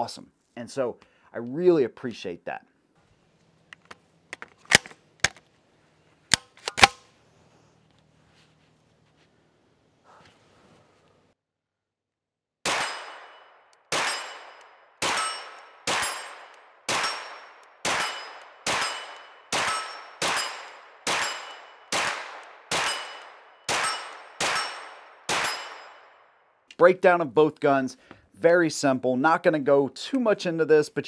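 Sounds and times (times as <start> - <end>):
carbine gunshots with ringing: 12.6 - 26.3.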